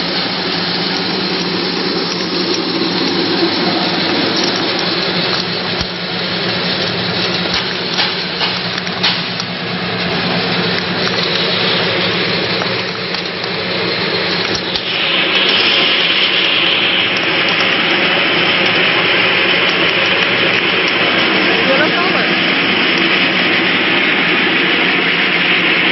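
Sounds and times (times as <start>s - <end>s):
motor hum: 0.0s - 25.9s
nut shells rattling and clattering: 0.9s - 9.5s.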